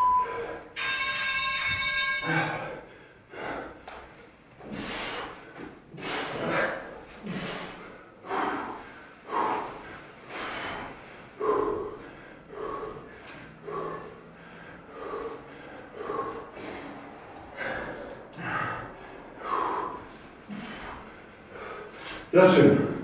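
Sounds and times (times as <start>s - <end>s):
men breathing hard: 0.0s - 0.8s, 1.7s - 23.0s
short beep: 0.0s - 1.0s
steady tone: 0.0s - 2.4s.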